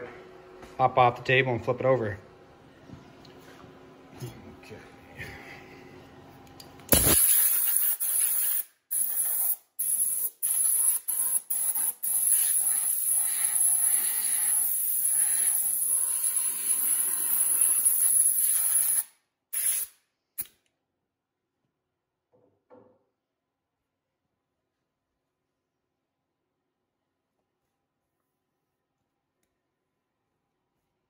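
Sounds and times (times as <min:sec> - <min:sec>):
compressed air blow gun hissing: 0:19.6 - 0:19.9.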